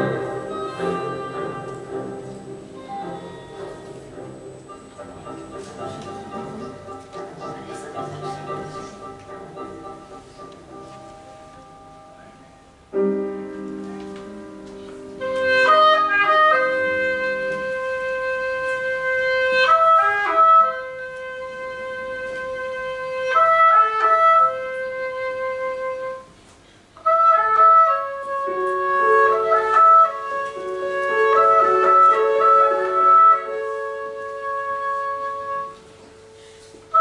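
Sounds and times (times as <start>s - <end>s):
piano chord: 0.0s - 19.1s
oboe playing slow melody: 0.0s - 26.4s, 27.0s - 37.0s.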